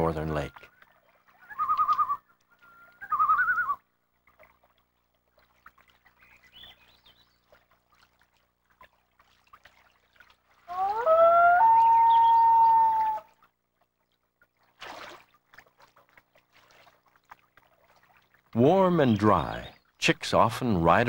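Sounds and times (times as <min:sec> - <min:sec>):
loon tremolo calls: 0:01.4 - 0:03.8
loon wail rising in pitch: 0:10.7 - 0:13.3.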